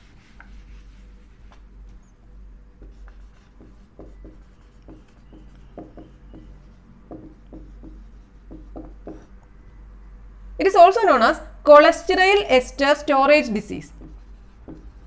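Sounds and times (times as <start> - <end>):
duster wiping whiteboard: 0.0 - 1.6
marker squeaking on whiteboard: 2.8 - 9.3.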